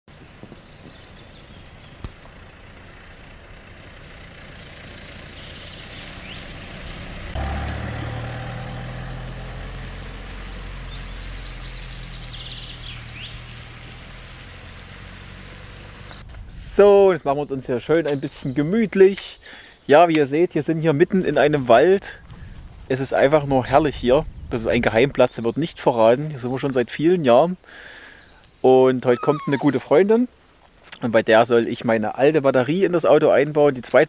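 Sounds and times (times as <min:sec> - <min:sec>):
bird chirps: 0:00.1 - 0:07.0, 0:09.9 - 0:14.0, 0:15.3 - 0:16.3, 0:27.9 - 0:30.2
van engine running: 0:00.1 - 0:18.3.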